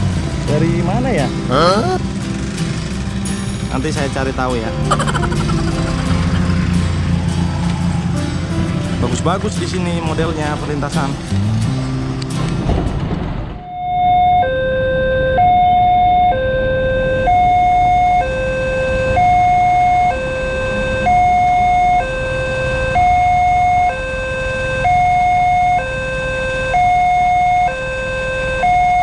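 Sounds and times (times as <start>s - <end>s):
two-tone level crossing alarm: 13.6s - 29.0s.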